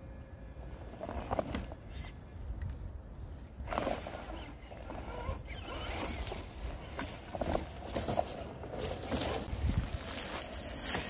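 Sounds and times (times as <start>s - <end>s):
dry leaves crackling and rustling: 5.5s - 11.0s.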